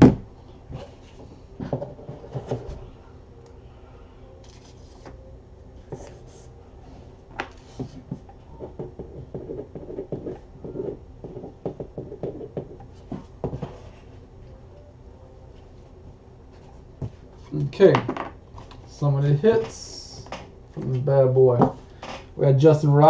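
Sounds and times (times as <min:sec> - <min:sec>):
steady low hum: 0:00.0 - 0:23.0
trading cards tapping and rubbing: 0:07.3 - 0:13.9.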